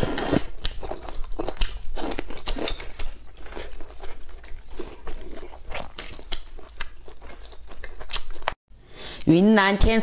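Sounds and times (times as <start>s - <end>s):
person chewing food: 0.0s - 8.6s.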